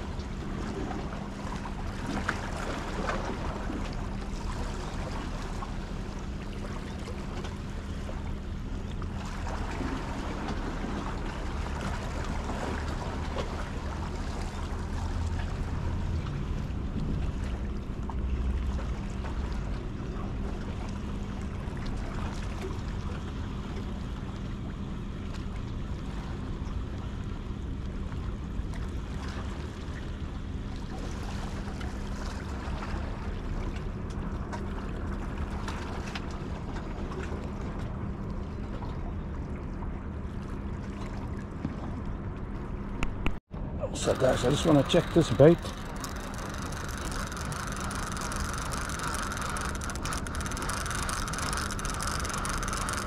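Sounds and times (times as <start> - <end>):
steady low drone: 37.0 - 53.0
small splashy clicks: 44.0 - 53.0.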